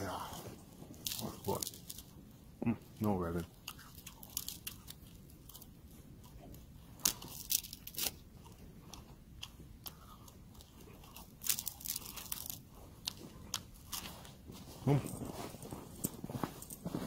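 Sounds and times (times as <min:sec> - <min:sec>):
person biting and chewing: 0:00.3 - 0:02.3, 0:03.5 - 0:16.2
sharp crunches: 0:07.0 - 0:17.0.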